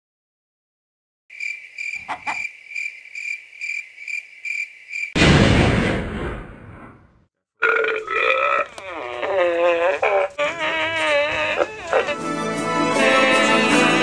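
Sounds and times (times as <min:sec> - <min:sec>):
crickets chirping: 0:01.3 - 0:05.2.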